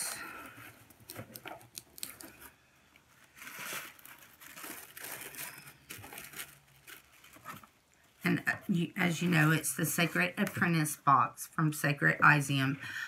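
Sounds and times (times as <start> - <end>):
cardboard box and paper rustling: 0.6 - 7.8.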